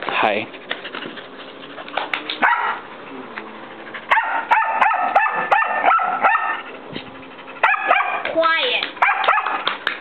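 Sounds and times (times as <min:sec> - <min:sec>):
dog barking high-pitched: 0:02.4 - 0:02.8, 0:04.1 - 0:06.7, 0:07.6 - 0:08.3, 0:09.0 - 0:09.7.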